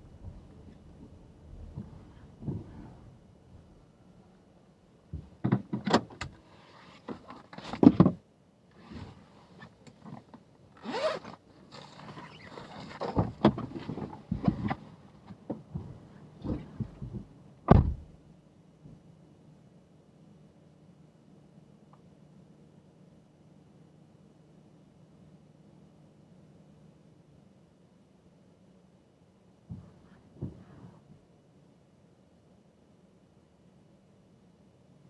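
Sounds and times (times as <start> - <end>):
heavy thump: 1.7 - 3.0, 15.7 - 18.2, 29.7 - 30.8
zip: 10.8 - 13.2.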